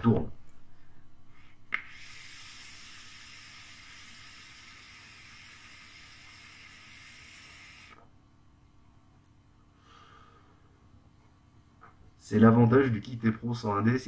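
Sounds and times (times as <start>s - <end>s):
e-cigarette draw hiss and sizzle: 1.7s - 8.1s.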